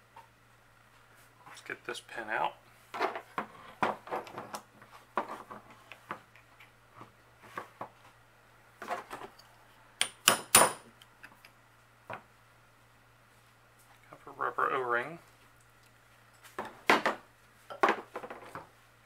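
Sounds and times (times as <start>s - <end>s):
hammer strikes on metal punch: 10.0s - 10.9s.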